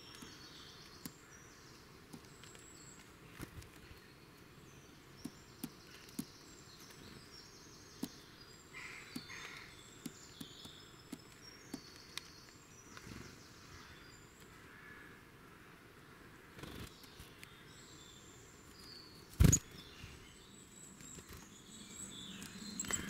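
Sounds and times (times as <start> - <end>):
faint birdsong: 0.0 - 23.0
bird wings fluttering: 19.3 - 19.8.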